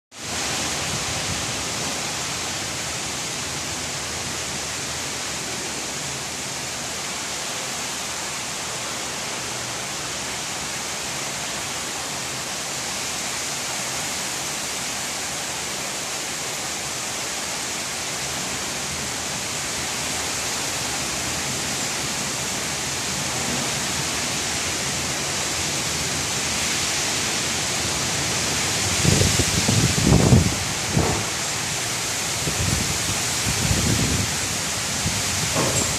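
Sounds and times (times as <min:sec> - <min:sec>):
heavy rain downpour: 0:00.1 - 0:35.9.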